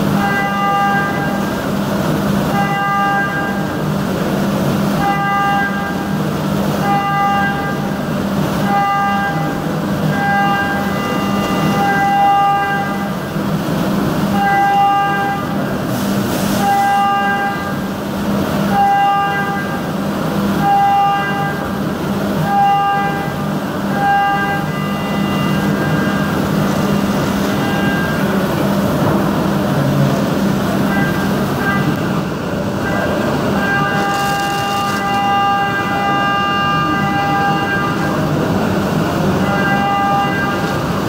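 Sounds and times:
coolant hiss: 15.8 - 16.9, 33.9 - 35.5
machine spindle hum: 17.5 - 41.0
high singing whine of cutter: 32.8 - 37.1.

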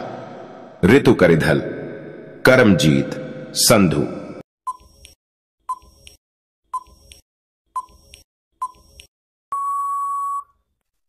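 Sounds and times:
long steady beep: 9.5 - 10.6
short beeps: 9.5 - 10.6.

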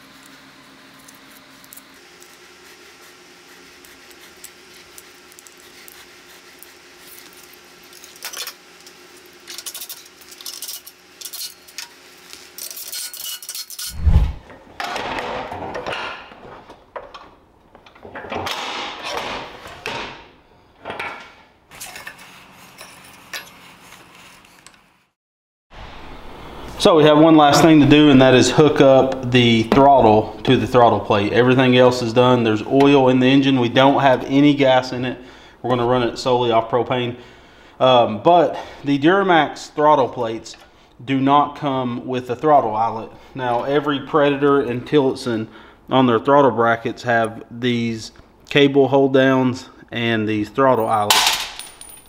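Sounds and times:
metal tools clinking on workbench: 22.8 - 23.6, 50.8 - 52.0.

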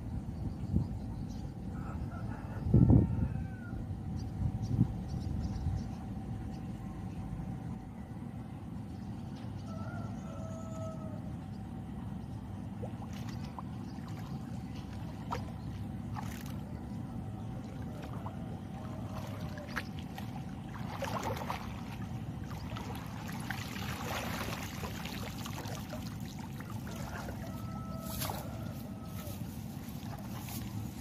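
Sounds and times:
steady low rumble: 0.0 - 31.0
water sloshing and splashing: 12.5 - 31.0.

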